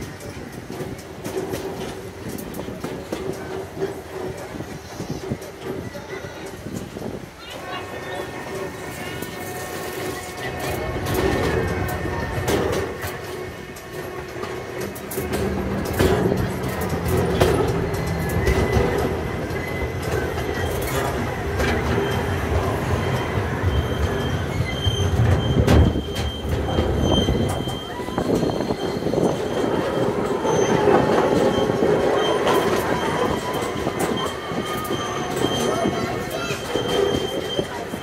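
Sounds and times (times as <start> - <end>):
train wheels rumbling and clicking: 0.0 - 38.0
high wheel squeal: 15.1 - 38.0.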